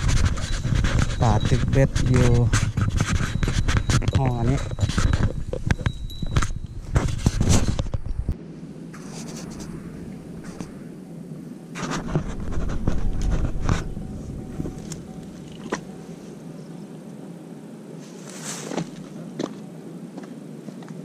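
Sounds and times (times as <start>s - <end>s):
footsteps on dry ground: 0.0s - 7.8s
rustles and light clicks: 0.0s - 8.4s, 11.7s - 16.1s
handling noise scraping: 0.0s - 11.0s, 11.7s - 16.4s
steady hiss: 0.0s - 21.0s.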